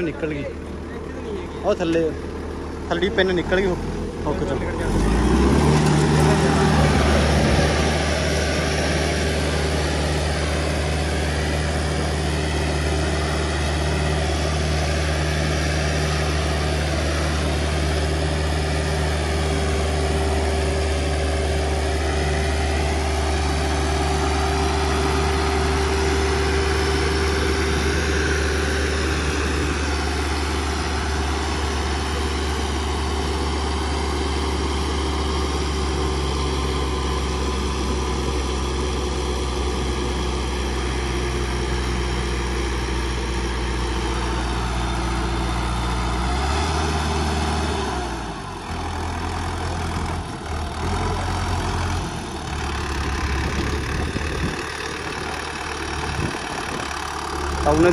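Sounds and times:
tractor diesel engine droning: 0:00.0 - 0:57.9.

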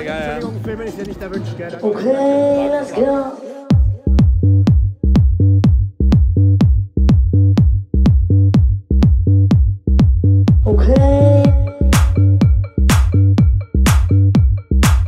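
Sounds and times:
deep bass line: 0:03.7 - 0:15.0
kick drum: 0:03.7 - 0:15.0.

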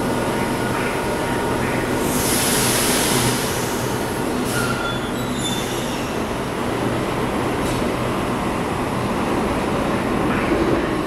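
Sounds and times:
air hiss: 0:02.0 - 0:04.8.

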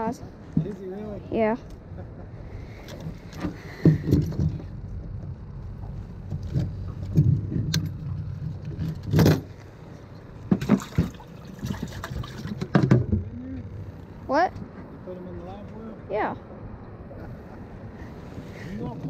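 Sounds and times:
knocks on boat deck and lid: 0:12.6 - 0:13.3.

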